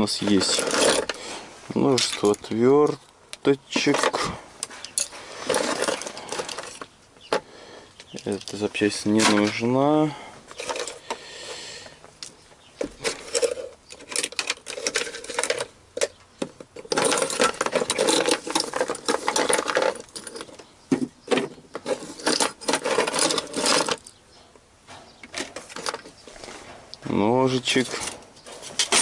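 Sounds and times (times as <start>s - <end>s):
metal parts clinking and rattling: 0.0s - 1.2s, 1.8s - 3.0s, 3.7s - 7.4s, 8.0s - 9.7s, 10.5s - 11.2s, 12.2s - 24.2s, 25.2s - 26.2s, 27.7s - 29.0s.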